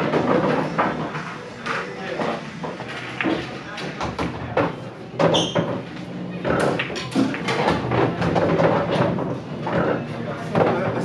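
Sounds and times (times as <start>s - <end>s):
bar chatter: 0.0s - 11.0s
pool balls clacking: 0.0s - 11.0s
cue striking ball: 2.8s - 9.8s.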